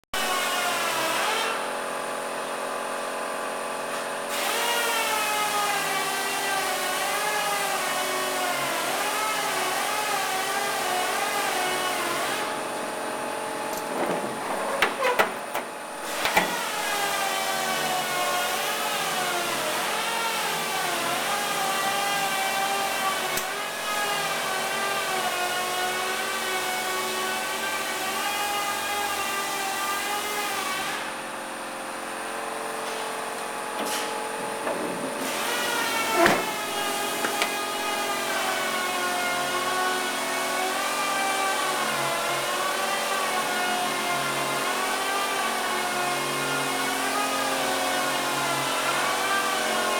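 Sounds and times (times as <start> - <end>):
sharp clicks and knocks: 13.7 - 16.6.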